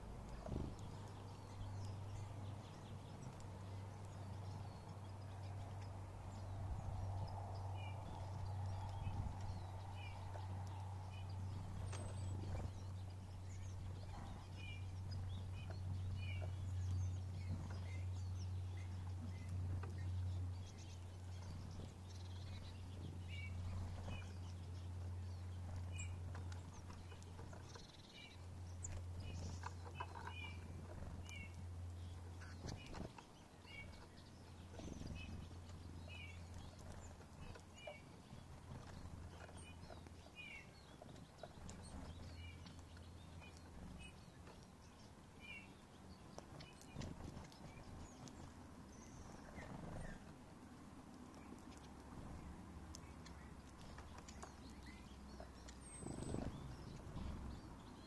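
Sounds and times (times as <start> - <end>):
low hum: 0.0 - 45.0
songbirds chirping and twittering: 0.0 - 58.0.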